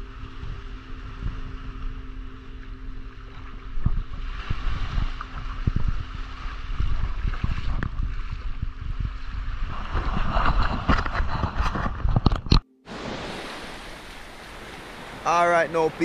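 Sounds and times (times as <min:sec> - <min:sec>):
wind buffeting microphone: 0:00.0 - 0:12.6
low hum: 0:00.0 - 0:15.2
small waves washing over sand: 0:12.9 - 0:16.0.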